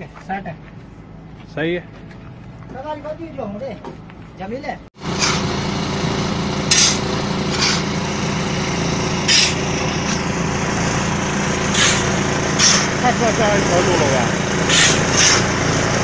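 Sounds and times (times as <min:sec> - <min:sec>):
concrete mixer diesel engine running: 0:04.9 - 0:16.0
shovels scraping: 0:05.1 - 0:05.5, 0:06.7 - 0:07.9, 0:09.2 - 0:10.2, 0:11.7 - 0:13.0, 0:14.6 - 0:15.5.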